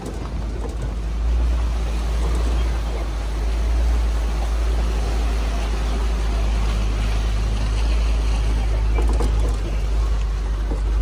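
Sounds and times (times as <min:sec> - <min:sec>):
truck engine rumbling: 0:00.0 - 0:11.0
tyres splashing through water: 0:00.0 - 0:11.0.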